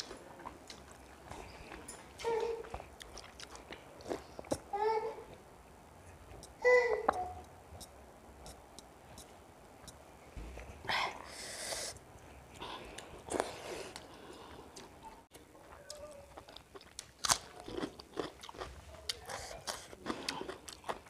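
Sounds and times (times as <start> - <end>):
chewing rice: 0.0 - 4.6, 12.3 - 21.0.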